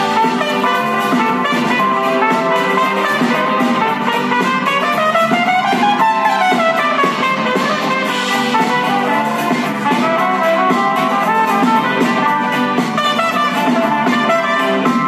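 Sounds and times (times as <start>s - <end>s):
horn-like lead line: 0.0s - 15.0s
live band playing instrumental: 0.0s - 15.0s.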